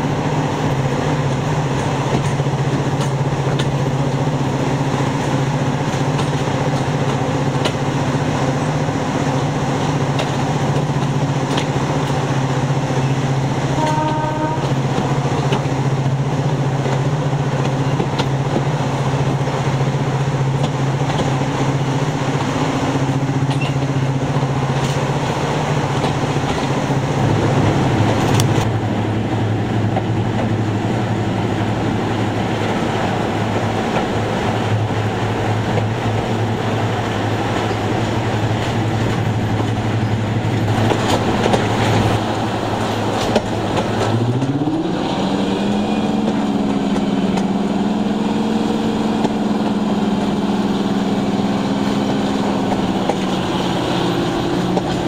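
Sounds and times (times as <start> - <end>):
diesel locomotive engine: 0.0 - 55.0
rail noise: 0.0 - 55.0
rushing air: 18.8 - 55.0.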